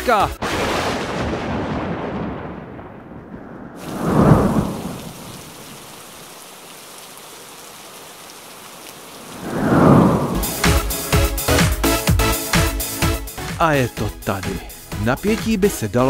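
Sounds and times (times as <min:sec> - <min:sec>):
thunder rumble: 0:00.5 - 0:06.3, 0:09.2 - 0:11.2
artificial rain hissing: 0:03.6 - 0:13.0.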